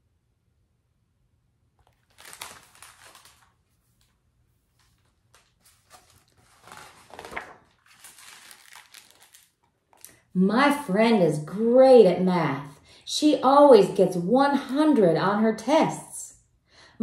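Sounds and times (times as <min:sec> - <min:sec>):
paper pages rustling: 0:01.8 - 0:10.2.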